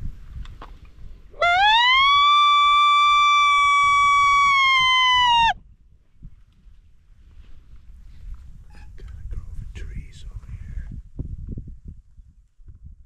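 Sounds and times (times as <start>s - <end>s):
coyote howler call: 1.4s - 5.6s.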